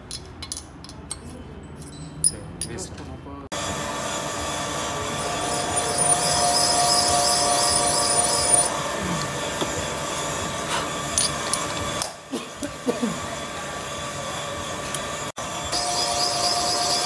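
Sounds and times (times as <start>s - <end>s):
metal-cutting machine squeal: 3.6s - 17.0s.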